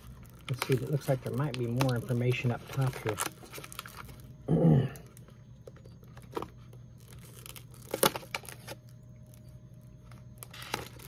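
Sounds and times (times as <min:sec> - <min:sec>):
foil bag crinkling: 0:00.0 - 0:11.0
person humming: 0:04.5 - 0:05.0.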